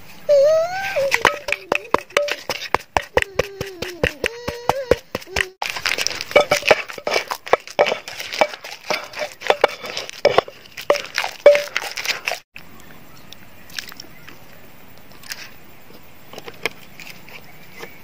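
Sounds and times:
pestle pounding in a mortar: 1.1s - 12.4s.

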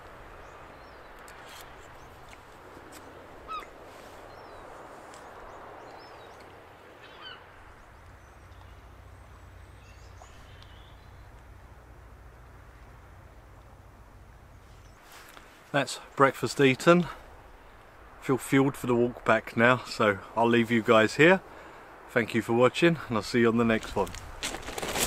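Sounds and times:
gentle waves at shore: 0.0s - 23.8s
short bird calls: 3.4s - 6.4s, 7.0s - 7.5s, 9.8s - 11.4s.

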